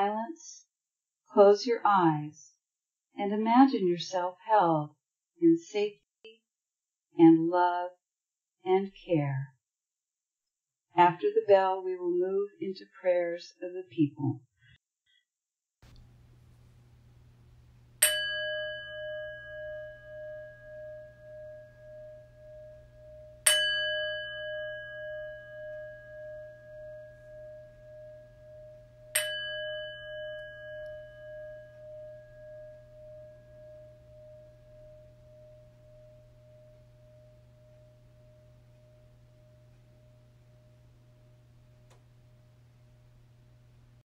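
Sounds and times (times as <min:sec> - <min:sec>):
bell ringing: 0:18.0 - 0:36.7.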